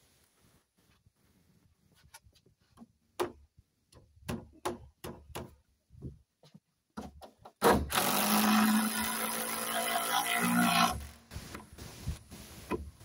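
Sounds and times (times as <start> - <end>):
knocks and clicks of wood and drill: 6.9 - 9.6.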